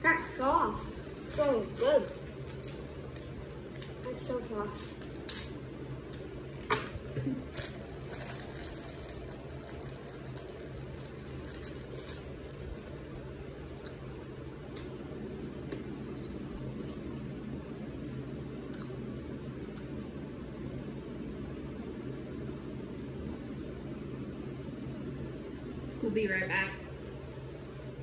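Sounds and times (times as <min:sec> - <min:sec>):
candy clicking and crackling: 0:00.0 - 0:14.9
steady low hum: 0:00.0 - 0:28.0.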